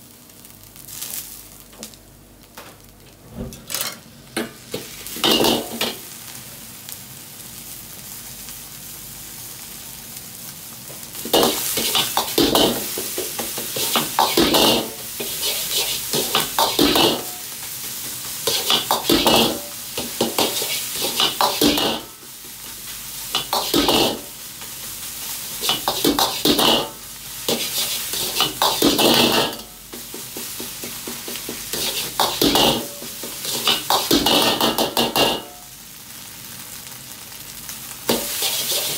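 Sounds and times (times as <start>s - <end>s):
rice sizzling in a wok: 0.0s - 3.1s, 4.0s - 38.9s
ladle scraping and clanking on wok: 5.2s - 6.0s, 11.3s - 17.4s, 18.4s - 22.1s, 23.3s - 24.3s, 25.6s - 35.6s, 38.1s - 38.9s.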